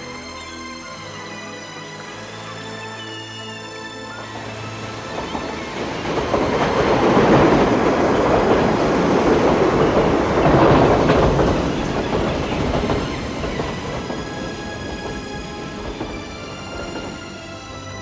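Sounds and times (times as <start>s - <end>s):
train rumbling on elevated railway: 0.0s - 18.0s.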